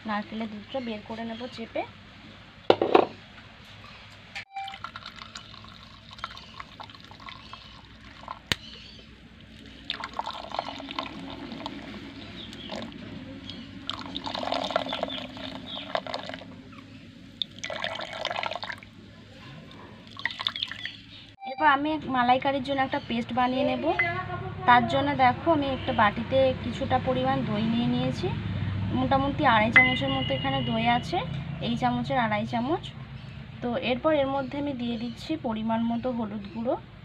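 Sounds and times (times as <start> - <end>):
milk pouring and splashing into bowl: 4.7 - 8.6, 9.5 - 16.5, 17.4 - 18.9, 20.0 - 21.0.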